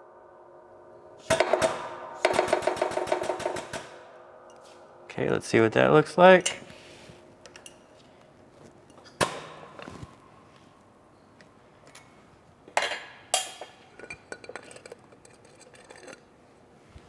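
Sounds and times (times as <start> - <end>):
metal parts and tools clinking: 12.7 - 16.3.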